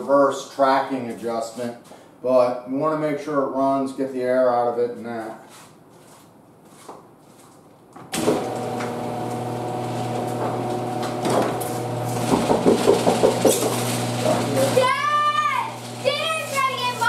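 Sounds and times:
mower engine running: 0:08.2 - 0:15.1.

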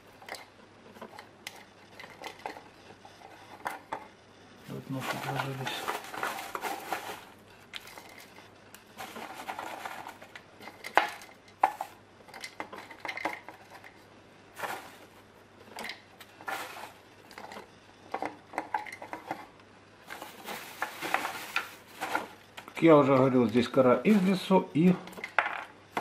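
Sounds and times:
plastic bag rustling: 0:04.6 - 0:17.7, 0:18.9 - 0:25.4
bark chunks knocking in plastic pot: 0:24.8 - 0:26.0.

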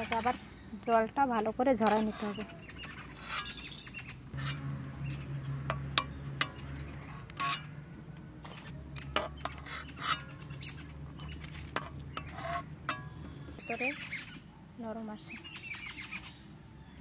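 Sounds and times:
utensil clicking and scraping pot: 0:00.0 - 0:04.6, 0:05.6 - 0:07.8, 0:08.4 - 0:13.2.

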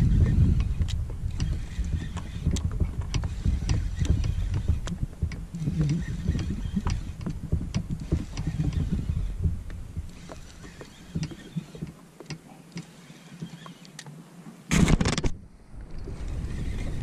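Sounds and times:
fishing reel clicking: 0:00.1 - 0:09.3
water thumping on kayak hull: 0:00.1 - 0:12.0.

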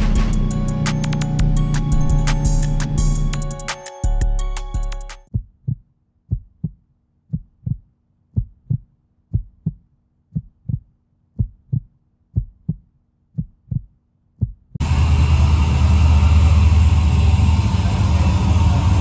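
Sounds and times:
heartbeat thumps: 0:05.3 - 0:14.8.

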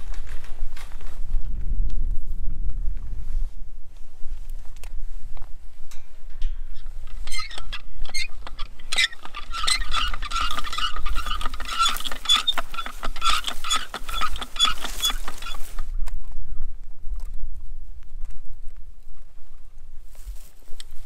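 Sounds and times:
hand-cranked reel clicking and whirring: 0:06.9 - 0:15.8.

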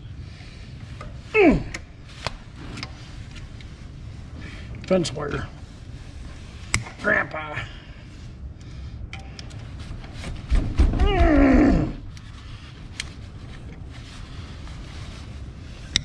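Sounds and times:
man grunting with effort: 0:01.3 - 0:01.8, 0:10.9 - 0:12.1.

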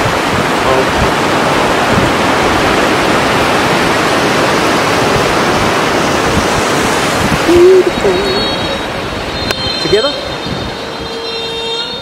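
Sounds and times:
surf washing over sand: 0:00.0 - 0:12.0
person speaking: 0:07.4 - 0:08.6.

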